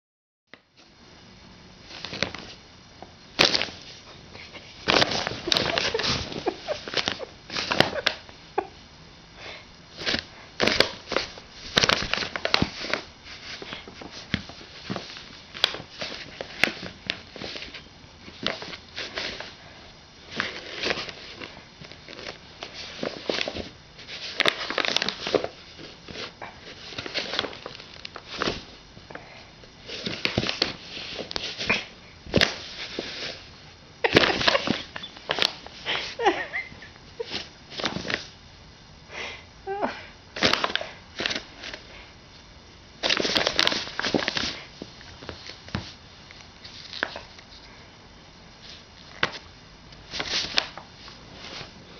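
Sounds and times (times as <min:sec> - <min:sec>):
paper bag crinkling: 0:03.4 - 0:08.2, 0:09.9 - 0:19.7, 0:20.3 - 0:28.8, 0:34.0 - 0:38.3, 0:43.0 - 0:45.9, 0:48.7 - 0:51.8.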